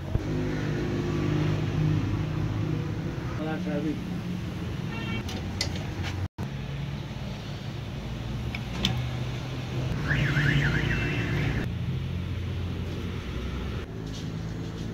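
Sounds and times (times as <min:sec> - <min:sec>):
vehicle alarm warbling: 0:04.9 - 0:05.2, 0:10.0 - 0:11.7.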